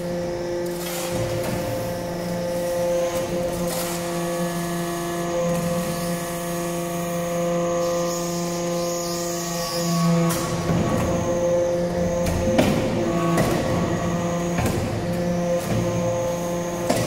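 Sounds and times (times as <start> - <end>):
hydraulic pump motor humming: 0.0 - 17.0
machine noise: 0.0 - 17.0.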